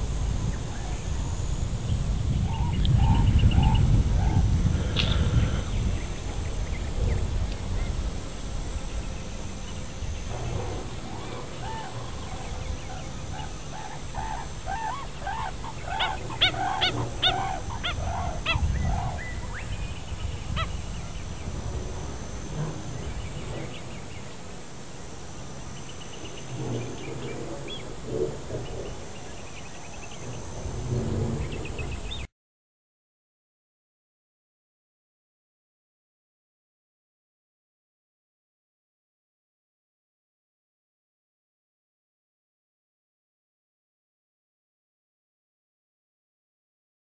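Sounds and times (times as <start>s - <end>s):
wetland birds calling: 2.3s - 7.2s, 10.3s - 21.5s.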